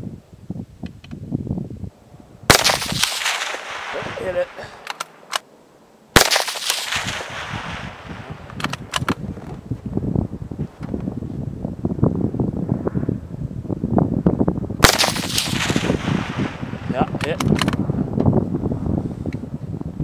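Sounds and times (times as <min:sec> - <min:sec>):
rifle shots with echo: 0:02.5 - 0:05.4, 0:06.1 - 0:09.2, 0:14.8 - 0:17.7
short sharp clicks: 0:04.8 - 0:05.4.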